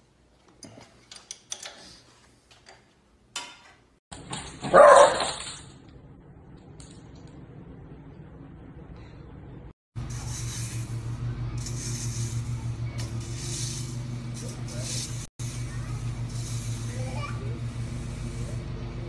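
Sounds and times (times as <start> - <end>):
metal parts clicking and tapping: 0.4 - 4.5
dog barking: 4.6 - 5.4.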